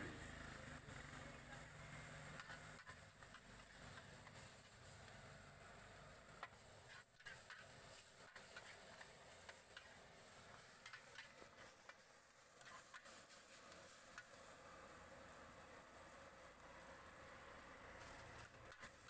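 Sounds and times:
noodles sizzling in a wok: 0:00.0 - 0:19.0
metal spatula scraping a wok: 0:02.3 - 0:04.8, 0:06.8 - 0:12.0, 0:12.6 - 0:13.6.

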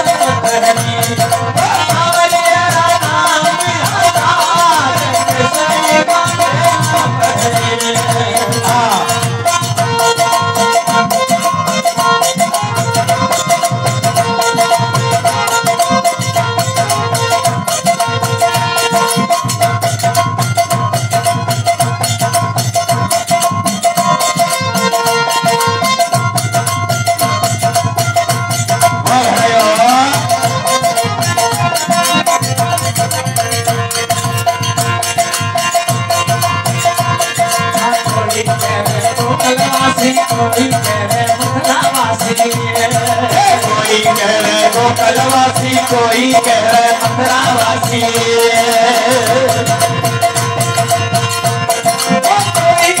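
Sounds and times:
man singing: 0:00.0 - 0:19.3, 0:28.6 - 0:34.0, 0:36.8 - 0:50.9, 0:51.7 - 0:53.0
fast rattling percussion: 0:00.0 - 0:53.0
harmonium chords: 0:00.0 - 0:53.0.

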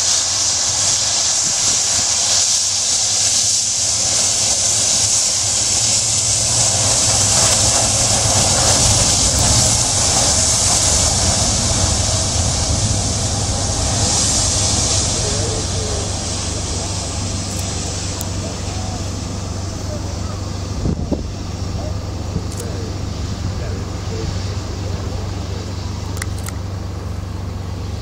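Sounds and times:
jet engines running: 0:00.0 - 0:28.0.

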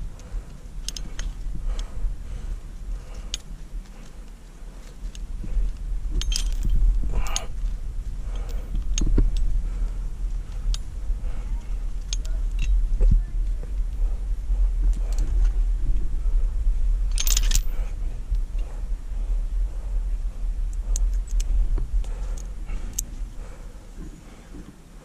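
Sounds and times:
carabiners clinking: 0:00.0 - 0:09.5, 0:10.2 - 0:13.1, 0:17.0 - 0:18.8
steady low rumble: 0:00.0 - 0:25.0.

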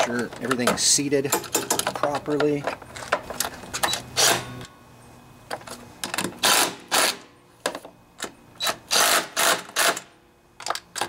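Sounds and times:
cordless drill short bursts: 0:08.6 - 0:10.1.

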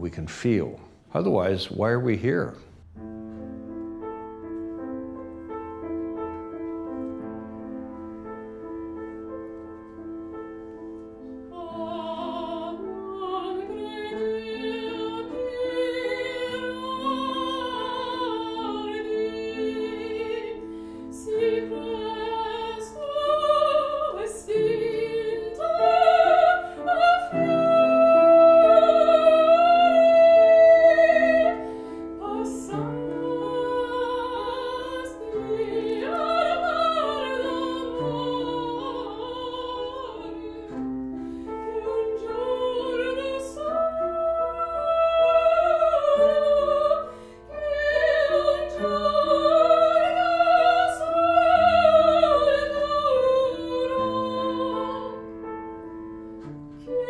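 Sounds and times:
piano accompaniment: 0:00.0 - 0:57.0
soprano singing opera: 0:10.9 - 0:55.5, 0:56.8 - 0:57.0.

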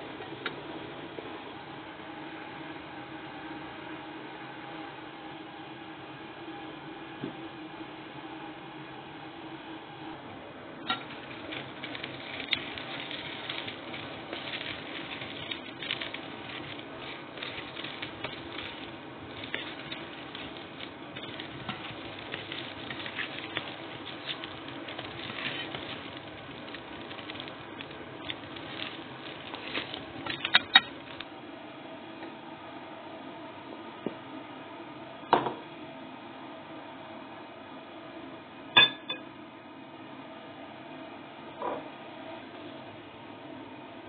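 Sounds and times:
knocks on a pot: 0:35.3 - 0:35.6.

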